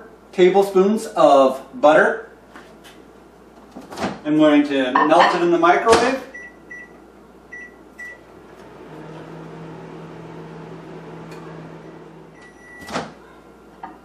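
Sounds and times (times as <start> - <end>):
long microwave beep: 6.3 - 8.3, 11.8 - 13.0
microwave humming: 6.3 - 14.0
microwave keypad beeping: 6.4 - 8.3, 11.8 - 13.0.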